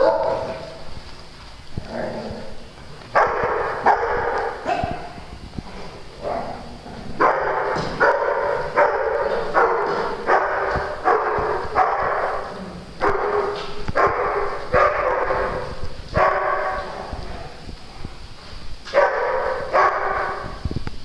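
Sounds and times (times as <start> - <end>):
dog barking: 0.0 - 0.7, 3.2 - 5.2, 7.2 - 16.9, 18.9 - 20.6.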